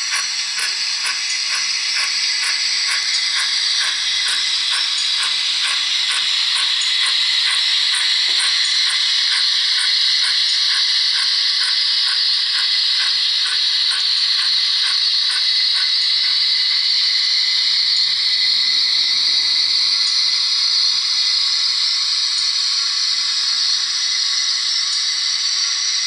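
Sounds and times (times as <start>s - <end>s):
rapid even ticking: 0.0s - 16.4s
steam hiss: 0.0s - 26.0s.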